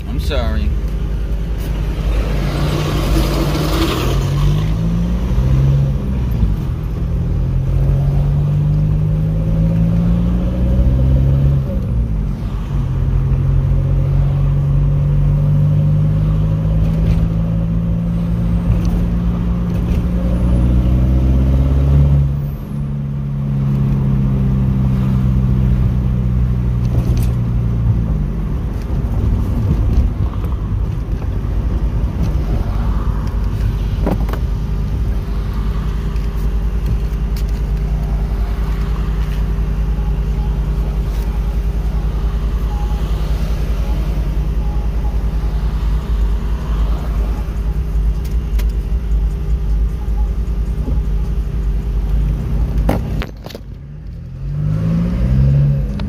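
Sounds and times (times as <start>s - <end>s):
car engine accelerating: 0.0s - 56.0s
road rumble inside car: 0.0s - 56.0s.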